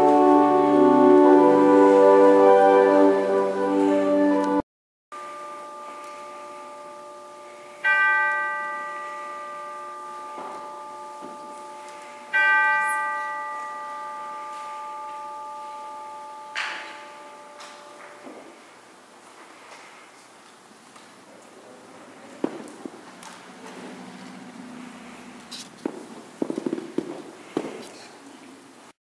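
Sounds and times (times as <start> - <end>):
bell ringing: 5.2 - 18.3.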